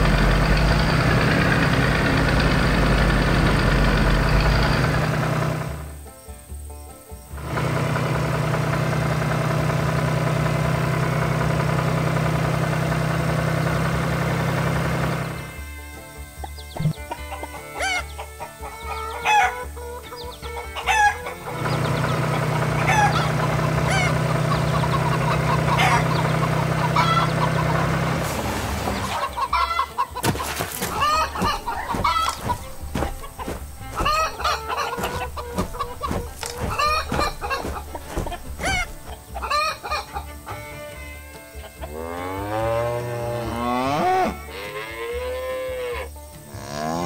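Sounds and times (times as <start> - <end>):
tractor engine humming: 0.0 - 42.0
chickens clucking: 16.3 - 28.2, 28.8 - 42.2.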